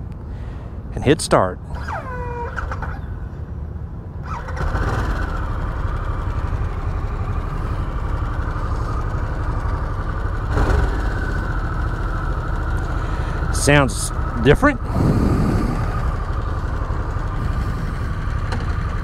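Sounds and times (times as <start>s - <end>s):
motorcycle engine starting: 1.7s - 3.2s, 4.2s - 19.0s
motorcycle engine idling: 4.4s - 19.0s.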